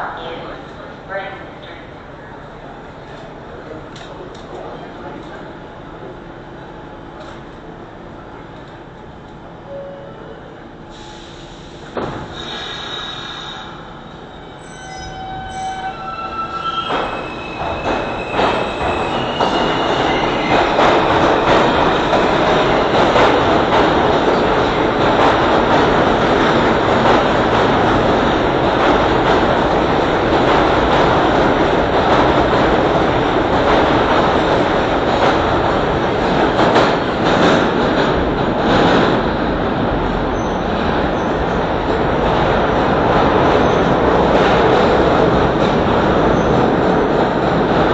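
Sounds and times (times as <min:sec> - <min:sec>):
subway train whining: 0:00.0 - 0:47.9
wheels clacking on rails: 0:16.8 - 0:47.9.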